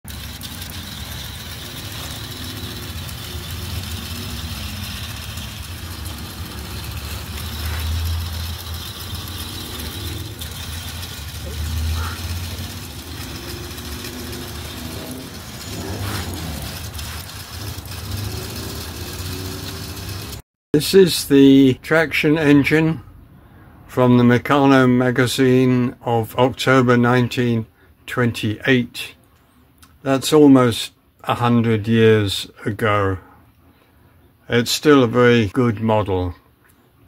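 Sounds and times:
model engine motors whirring: 0.1s - 20.4s.

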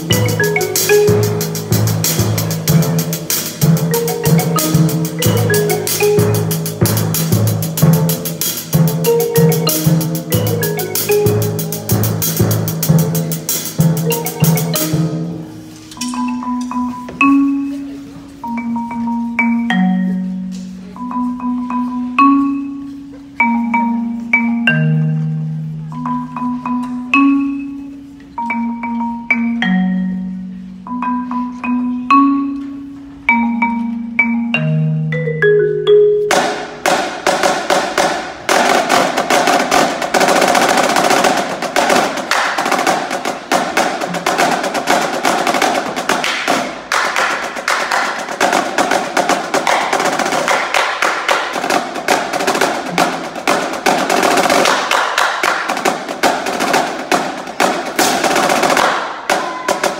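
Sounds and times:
marching drumline: 0.0s - 15.5s, 36.3s - 59.9s
marimba notes: 0.0s - 59.9s.

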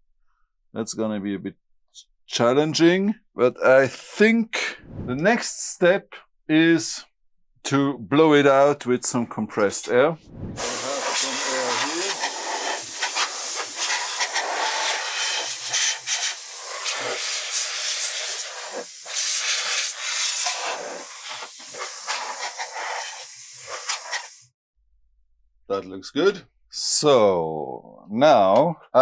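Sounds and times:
air blow gun hissing: 10.6s - 24.6s.

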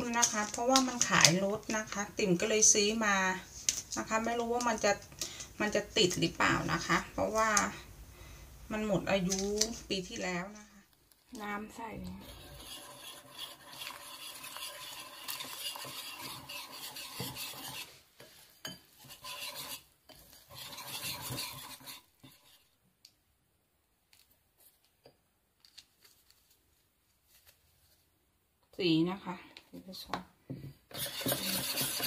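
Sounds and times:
whisk scraping glass bowl: 11.9s - 22.8s, 30.9s - 32.0s.

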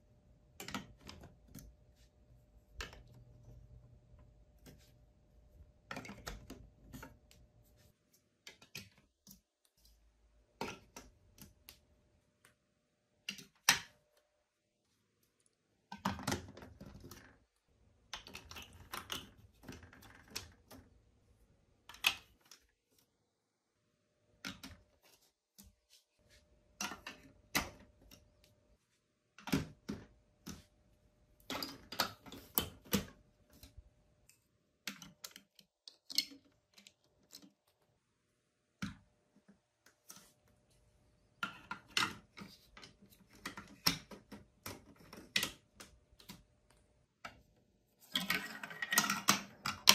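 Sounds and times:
plastic blocks clicking together: 18.0s - 20.9s, 21.9s - 22.7s, 34.8s - 37.8s, 48.1s - 49.9s.

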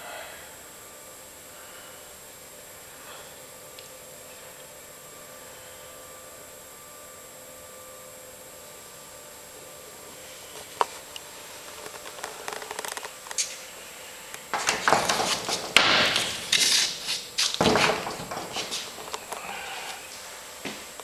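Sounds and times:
small knocks on wooden frame: 14.5s - 16.6s, 17.6s - 18.9s
canvas rustling and scraping: 14.6s - 19.1s.

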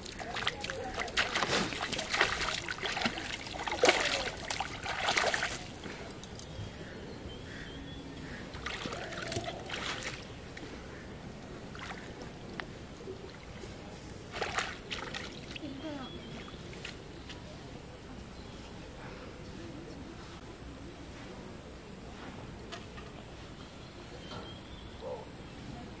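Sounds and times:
fish thrashing and splashing: 0.0s - 6.4s, 8.6s - 10.3s.

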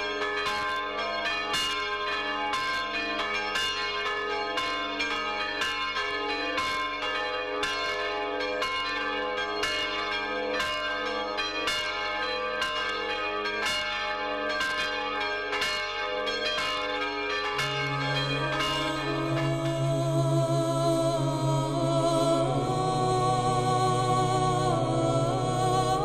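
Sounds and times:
church bells pealing: 0.0s - 26.0s.

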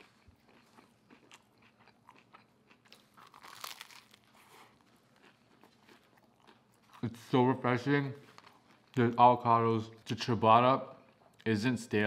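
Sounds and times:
crunchy bite into bread crust: 0.0s - 7.0s
chewing a sandwich: 0.0s - 7.4s, 8.1s - 10.3s, 10.9s - 11.6s.

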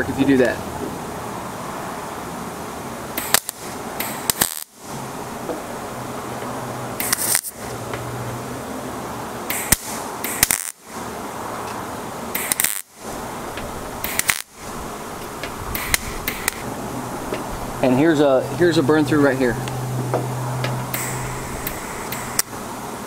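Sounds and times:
welding arc crackling: 3.1s - 8.2s, 9.4s - 22.7s
welder low hum: 3.1s - 23.0s.

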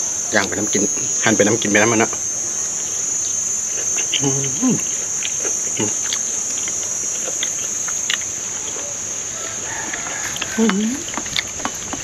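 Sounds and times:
insects droning: 0.0s - 12.0s
person humming: 3.8s - 7.6s
chewing mouth clicks: 4.0s - 8.9s, 9.8s - 12.0s.

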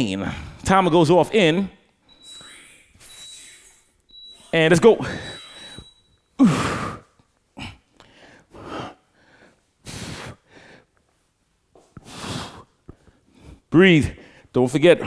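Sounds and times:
man breathing heavily: 6.4s - 11.2s, 11.8s - 14.5s.

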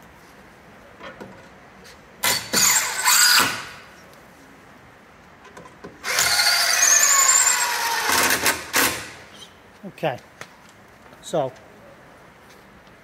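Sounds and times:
cordless drill driving screws: 2.2s - 3.8s, 6.0s - 9.2s.

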